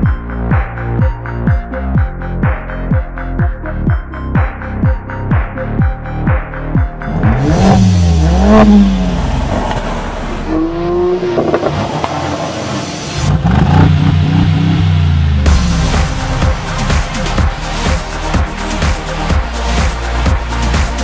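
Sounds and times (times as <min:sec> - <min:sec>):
pulsing electronic beat: 0:00.0 - 0:09.2, 0:15.5 - 0:21.0
car engine revving: 0:07.0 - 0:18.0.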